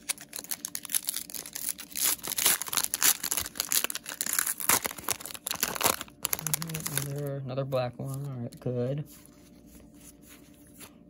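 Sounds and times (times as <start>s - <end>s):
foil wrapper crinkling and tearing: 0.0s - 7.3s.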